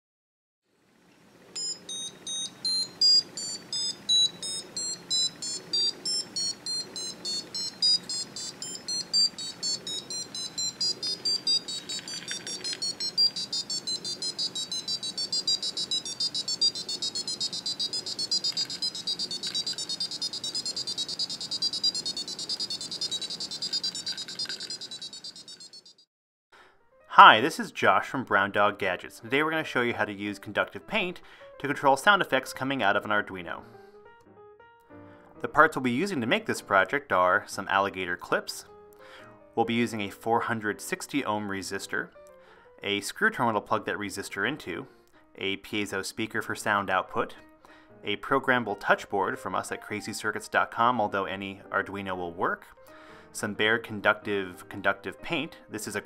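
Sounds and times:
high-pitched piezo beeps: 1.6s - 26.0s.

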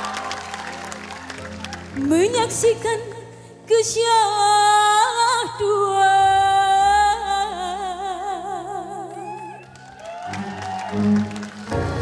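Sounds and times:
woman singing a slow ballad: 2.0s - 9.6s.

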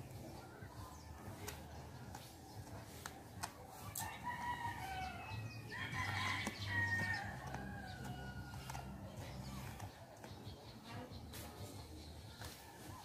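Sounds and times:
rooster crowing: 4.0s - 8.9s.

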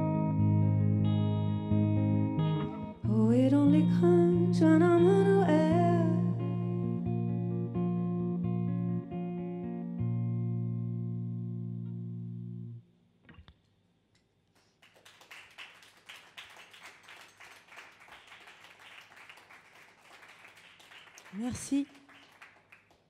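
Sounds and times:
audience clapping: 14.5s - 23.0s.

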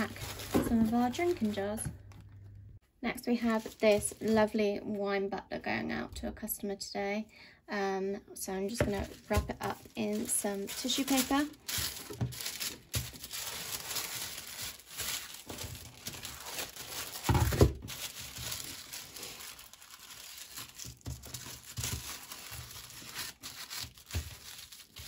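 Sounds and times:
tissue paper rustling: 0.0s - 1.7s, 3.4s - 4.5s, 8.7s - 25.0s.

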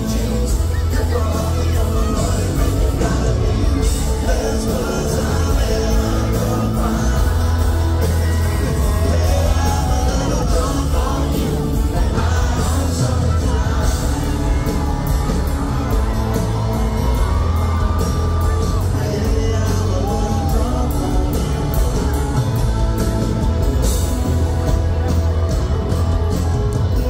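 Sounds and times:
audience whooping and yelling: 0.0s - 27.0s
country band playing live: 0.0s - 27.0s
steady drum beat: 0.0s - 27.0s.

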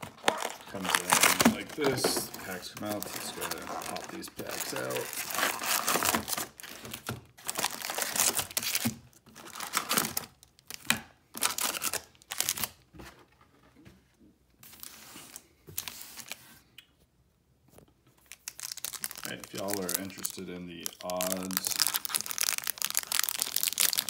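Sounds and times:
foil packs crinkling: 0.0s - 12.8s, 18.2s - 24.0s.

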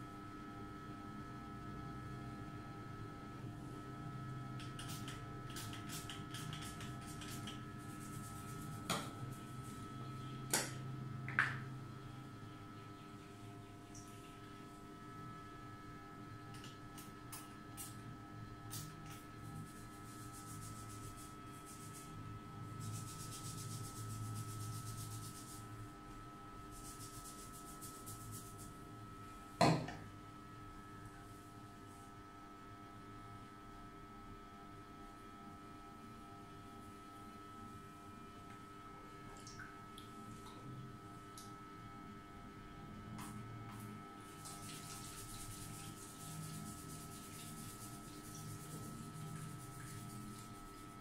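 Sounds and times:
faint electrical hum: 0.0s - 51.0s
fingers rubbing damp hair: 4.7s - 9.7s.

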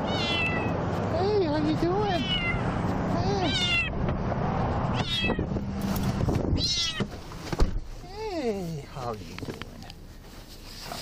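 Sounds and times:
kitten meowing: 0.0s - 0.8s, 2.0s - 4.0s, 4.9s - 5.5s, 6.6s - 7.1s.

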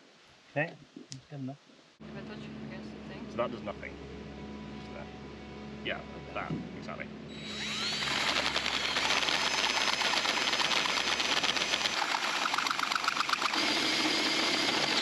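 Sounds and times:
drill motor whining: 7.3s - 15.0s
hole saw squealing through metal: 7.3s - 15.0s.

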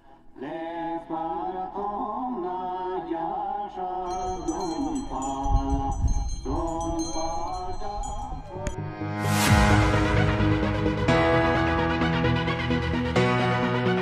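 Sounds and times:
chanted vocal melody: 0.0s - 11.7s
bell-like notes: 4.1s - 9.8s.

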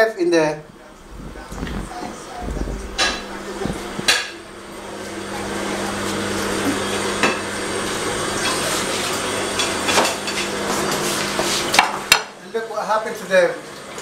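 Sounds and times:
low hum: 0.5s - 8.5s
steady rushing noise: 0.6s - 5.6s.

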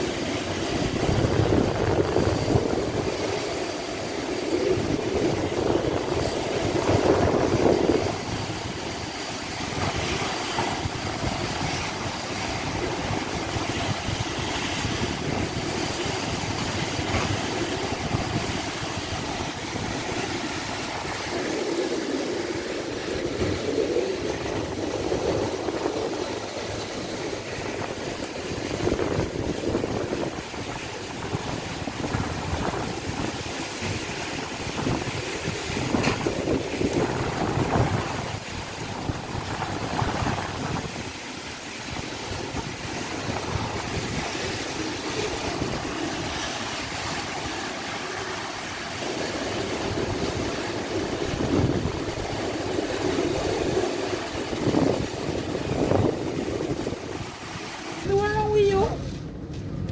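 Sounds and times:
gusting wind: 0.0s - 59.9s
heavy rain: 0.0s - 59.9s
wind buffeting microphone: 0.0s - 59.9s.

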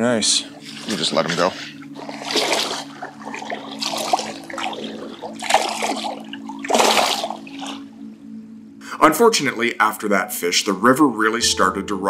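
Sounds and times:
water splashing: 0.6s - 8.0s.

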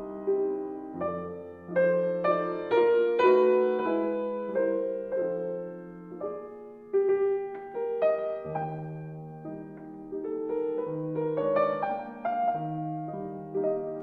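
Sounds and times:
slow piano piece: 0.0s - 14.0s.

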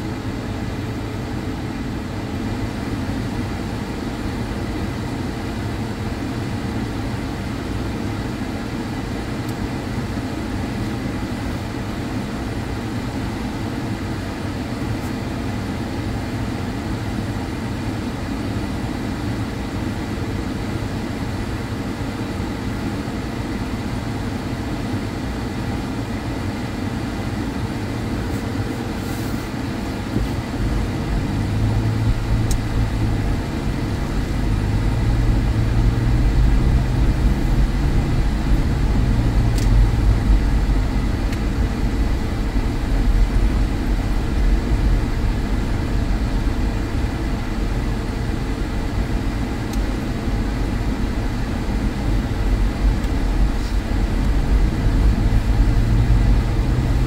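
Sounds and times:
engine and road rumble: 0.0s - 57.0s
car cabin hum: 25.6s - 57.0s.

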